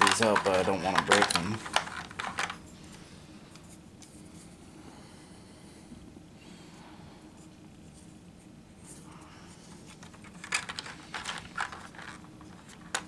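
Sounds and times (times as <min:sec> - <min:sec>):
plastic miniatures clicking: 0:00.0 - 0:02.6
plastic packaging crinkling: 0:00.0 - 0:02.6, 0:09.9 - 0:13.0.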